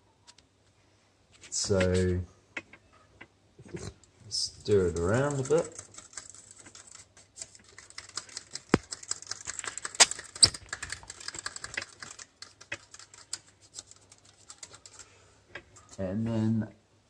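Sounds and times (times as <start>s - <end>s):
plastic stirrer clicking in cup: 4.7s - 15.0s.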